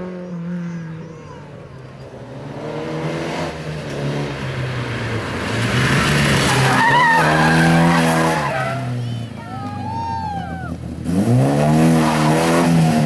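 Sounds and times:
car engine revving: 0.0s - 9.8s, 10.6s - 13.0s
tyres squealing: 5.8s - 10.8s.

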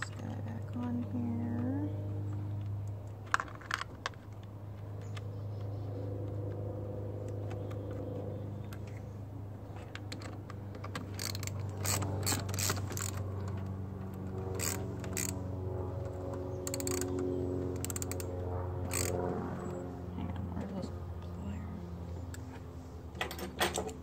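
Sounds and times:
steady low hum: 0.0s - 24.0s
socket ratchet clicking: 16.7s - 17.2s, 18.9s - 19.1s.

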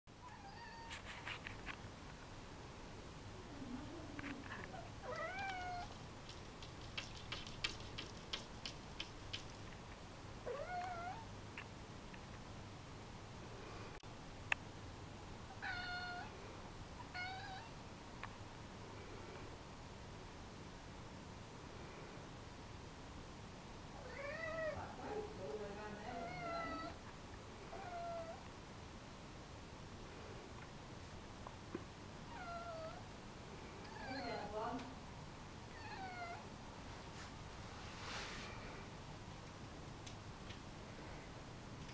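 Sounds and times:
cat meowing: 0.2s - 1.0s, 4.7s - 6.0s, 10.5s - 11.2s, 15.6s - 16.3s, 17.0s - 17.8s, 26.2s - 27.0s, 27.7s - 28.4s, 32.3s - 33.0s, 35.7s - 36.4s
quick sharp clicks: 6.2s - 9.7s.

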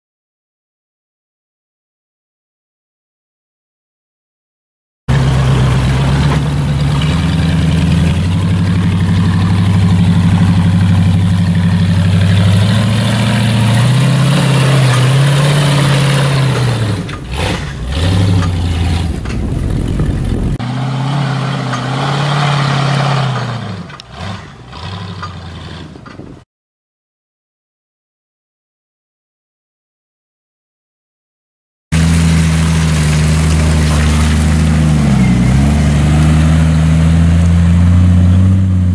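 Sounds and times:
engine revving under load: 5.1s - 26.3s, 32.0s - 38.9s.

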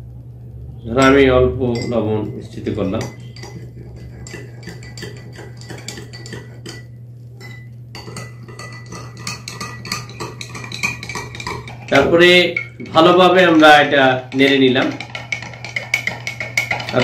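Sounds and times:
teaspoon clinking in glass: 1.7s - 2.0s, 2.9s - 13.1s, 14.3s - 17.0s.

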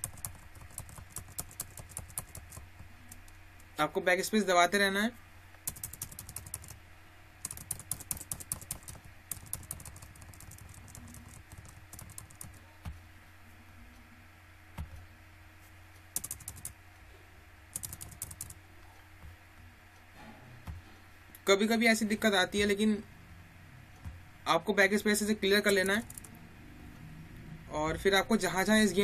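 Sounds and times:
keyboard keys clicking: 0.0s - 3.4s, 5.6s - 6.8s, 7.4s - 12.6s, 16.2s - 16.8s, 17.7s - 18.6s, 25.1s - 26.3s
low steady hum: 0.0s - 29.0s.

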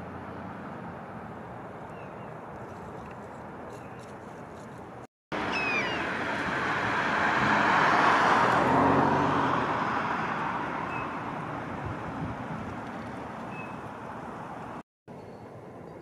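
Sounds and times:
passing vehicle road noise: 5.3s - 14.8s
high falling bird call: 5.4s - 6.1s.

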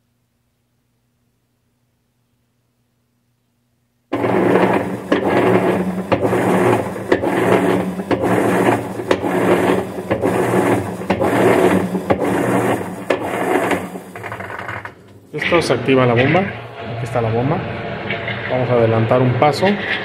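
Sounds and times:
motor hum: 4.1s - 19.4s
washing machine churning: 4.1s - 20.0s.

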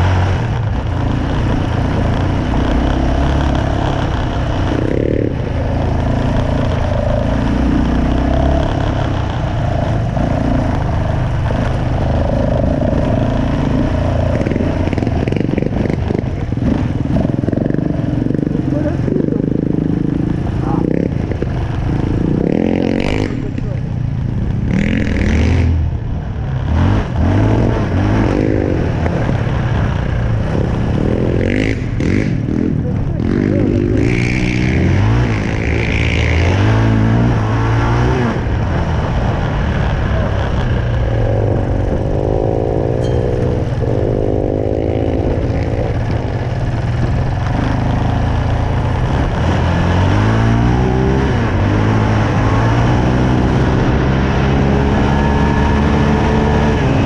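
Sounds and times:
quad bike engine revving: 0.0s - 57.0s.

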